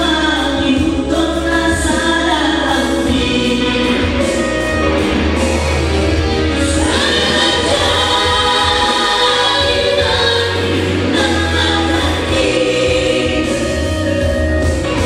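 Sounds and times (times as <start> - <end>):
musical accompaniment with bass: 0.0 - 15.0
men singing in harmony: 6.6 - 13.9.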